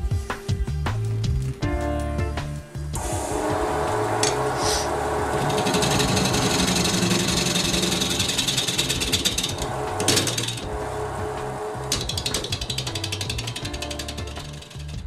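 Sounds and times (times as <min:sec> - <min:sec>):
wood lathe running: 0:03.0 - 0:15.0.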